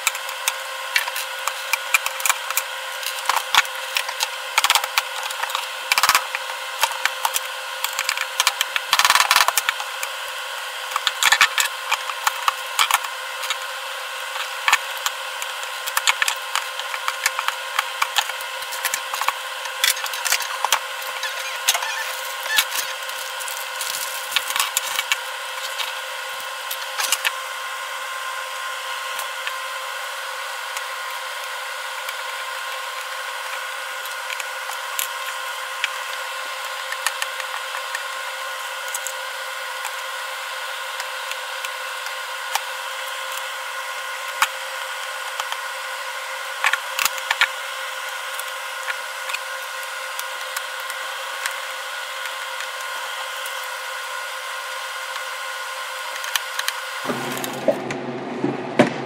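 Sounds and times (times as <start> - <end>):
steady background hum: 0.0 - 59.0.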